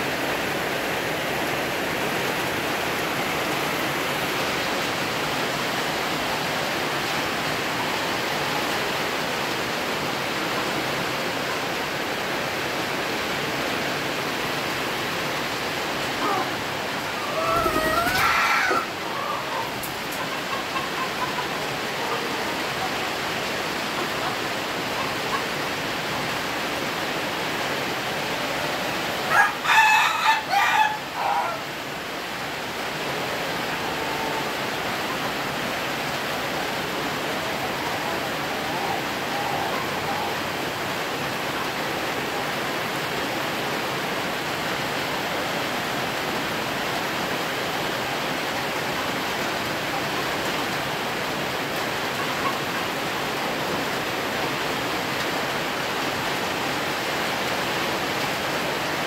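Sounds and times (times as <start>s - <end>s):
rooster crowing in stuttering notes: 17.2s - 19.6s.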